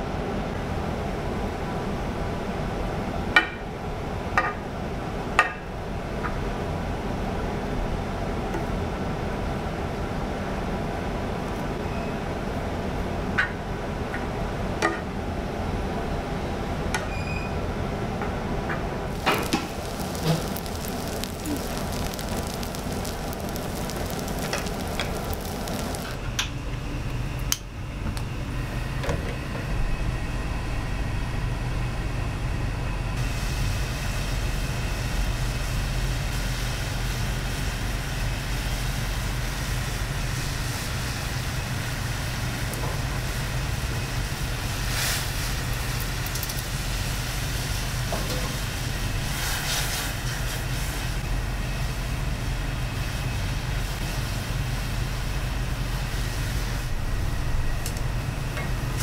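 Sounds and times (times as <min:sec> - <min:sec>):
rice sizzling on a griddle: 0:19.1 - 0:26.2, 0:33.2 - 0:57.0
gas stove burner rushing: 0:19.1 - 0:27.6, 0:33.2 - 0:59.0.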